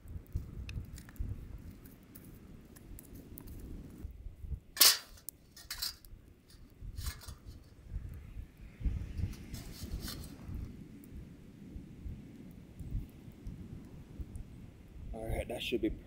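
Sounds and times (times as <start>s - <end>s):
campfire crackling and popping: 0.0s - 16.0s
grill grate clanking down: 4.8s - 6.0s.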